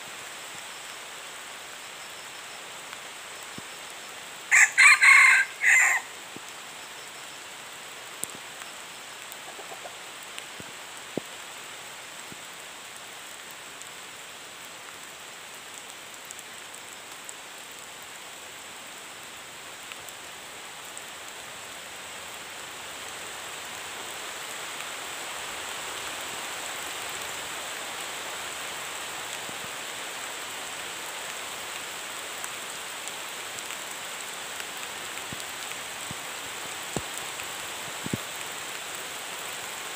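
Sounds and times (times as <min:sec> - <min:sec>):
forest ambience hiss: 0:00.0 - 0:39.9
rooster crowing: 0:04.5 - 0:06.2
faint ticks: 0:08.2 - 0:11.4.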